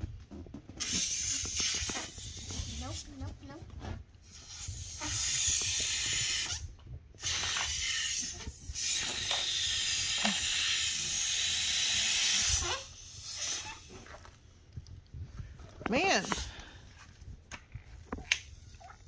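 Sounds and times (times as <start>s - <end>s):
air hissing out of balloon: 0.8s - 3.1s, 4.2s - 14.0s.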